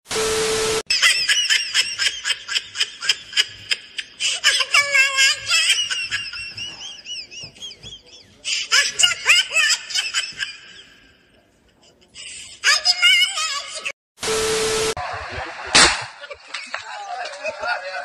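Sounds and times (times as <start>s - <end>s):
tv static noise with tone: 0.1s - 0.8s, 14.2s - 16.2s
person laughing high-pitched: 0.9s - 11.0s.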